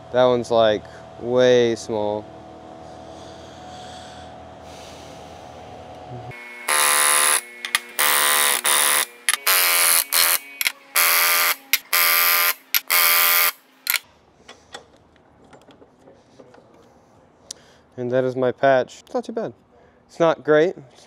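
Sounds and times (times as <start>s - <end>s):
pneumatic rivet gun hammering: 6.7s - 14.9s.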